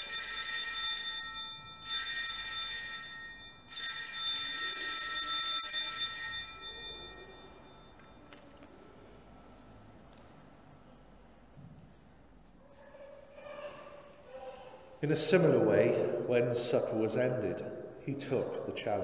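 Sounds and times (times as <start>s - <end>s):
small altar bells ringing: 0.0s - 8.4s.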